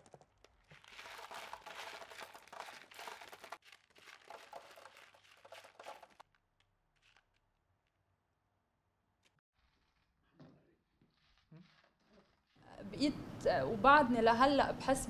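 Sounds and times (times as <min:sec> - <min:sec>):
plastic sack rustling: 0:00.5 - 0:06.2.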